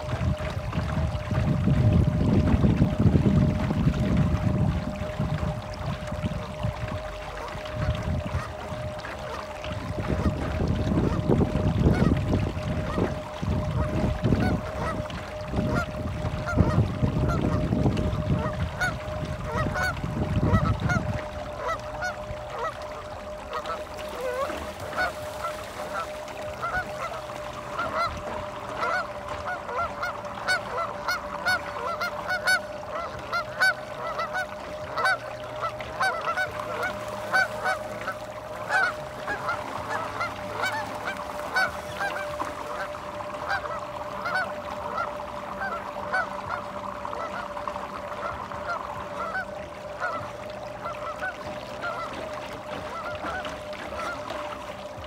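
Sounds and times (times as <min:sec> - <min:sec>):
steady hum: 0:00.0 - 0:55.0
geese honking: 0:13.7 - 0:15.0, 0:15.7 - 0:17.6, 0:18.3 - 0:54.4.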